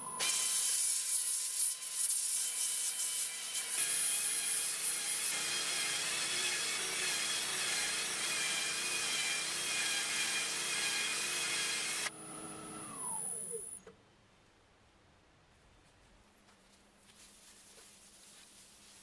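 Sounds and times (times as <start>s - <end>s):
lathe motor whine: 11.8s - 13.8s.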